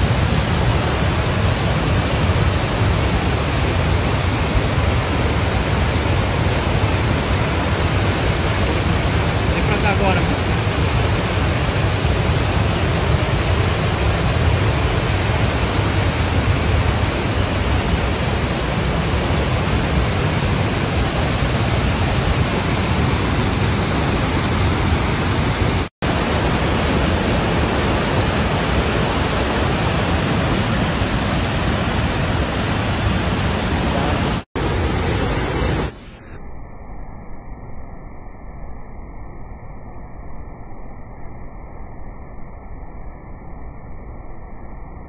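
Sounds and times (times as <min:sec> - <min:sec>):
waterfall rushing: 0:00.0 - 0:36.0.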